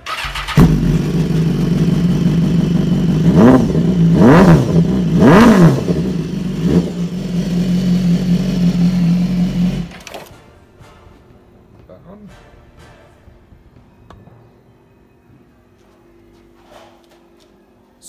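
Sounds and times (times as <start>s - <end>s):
motorcycle engine revving and idling: 0.0s - 10.0s.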